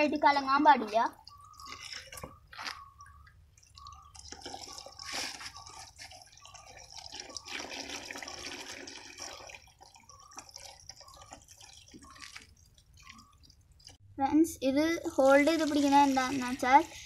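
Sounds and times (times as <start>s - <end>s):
hose water splashing into tub: 15.2s - 16.8s.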